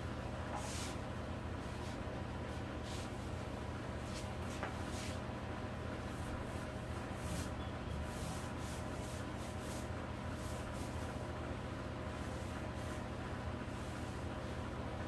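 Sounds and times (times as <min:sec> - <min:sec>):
steady low hum: 0:00.0 - 0:15.0
paint brush rubbing on wood: 0:00.6 - 0:01.0, 0:04.0 - 0:05.2, 0:06.0 - 0:11.2, 0:12.1 - 0:14.6.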